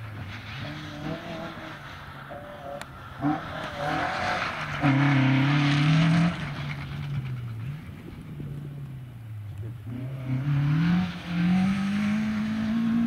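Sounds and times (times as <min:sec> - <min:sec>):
rally car engine at high revs: 0:00.0 - 0:08.8, 0:09.5 - 0:13.0.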